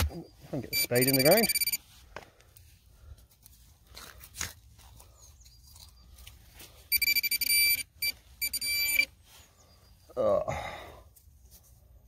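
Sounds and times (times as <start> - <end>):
metal detector beeping: 0.0 - 1.9, 6.9 - 9.2
faint crunches: 1.9 - 6.9.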